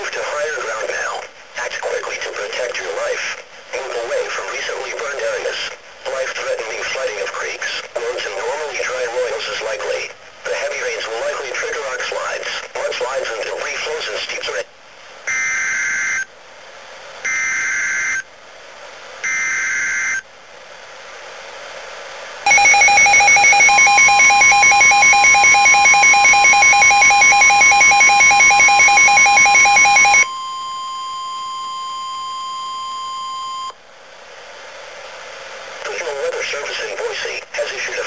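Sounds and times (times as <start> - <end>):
warbling digital data tones: 22.5 - 30.3
steady warning alert tone: 22.5 - 30.4
rapidly pulsing alarm: 22.5 - 33.7.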